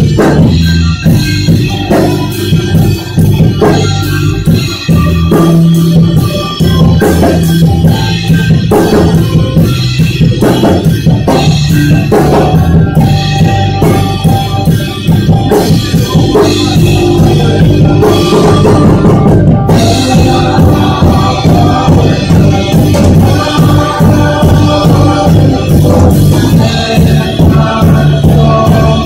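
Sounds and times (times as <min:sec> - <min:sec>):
drum beat: 0:00.0 - 0:29.0
keyboard and guitar chords: 0:00.0 - 0:29.0
voices singing: 0:15.8 - 0:29.0.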